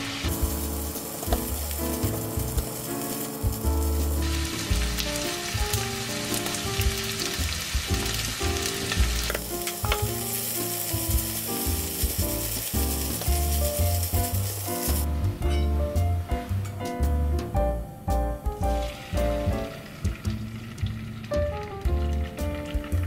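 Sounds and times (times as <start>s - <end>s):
rice sizzling in a hot pan: 0.0s - 15.6s, 18.7s - 21.5s
background music with bass line: 0.0s - 23.0s.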